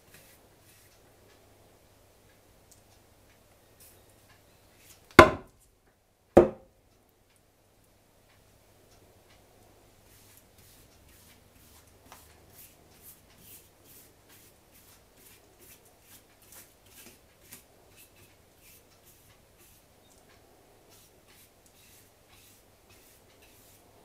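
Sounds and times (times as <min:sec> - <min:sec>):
brush swishing on wood: 0:10.1 - 0:19.9, 0:20.9 - 0:24.0.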